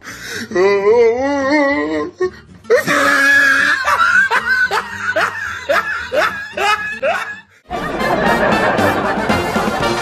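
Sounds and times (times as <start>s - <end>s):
background music: 0.0s - 10.0s
person laughing: 2.9s - 10.0s.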